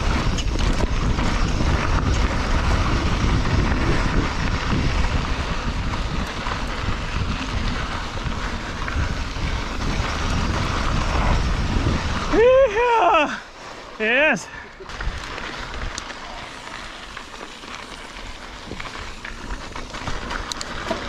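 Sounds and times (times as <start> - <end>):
wind buffeting microphone: 0.0 - 13.4, 14.4 - 21.0
bike rattling: 0.0 - 21.0
bike tyres rolling on dirt: 0.0 - 21.0.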